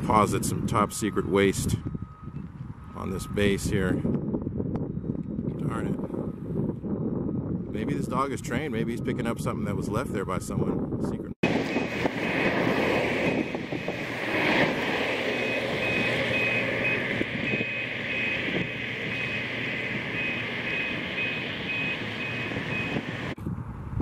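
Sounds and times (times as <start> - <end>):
vehicle back-up alarm beeping: 0.0 - 5.3, 6.0 - 7.7, 11.4 - 23.4
engine rumble: 11.4 - 24.0.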